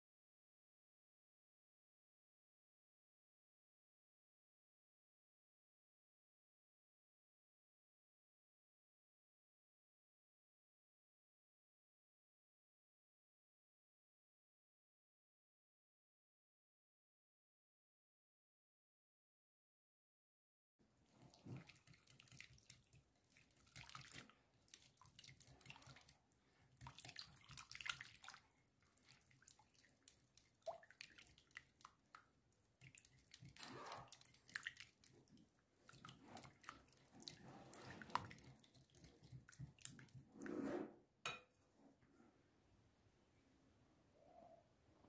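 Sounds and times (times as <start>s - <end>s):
whisk sloshing batter: 21.1s - 40.4s.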